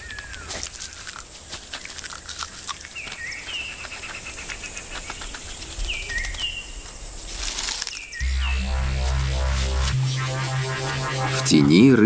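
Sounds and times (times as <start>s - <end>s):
rustling in dry leaves: 7.1s - 8.0s
short two-note chirps: 8.2s - 12.0s.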